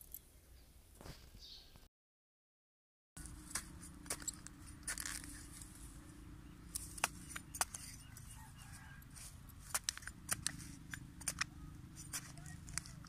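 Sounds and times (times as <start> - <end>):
low steady rumble: 3.2 - 13.0
metal tool scraping dry soil: 3.2 - 13.0.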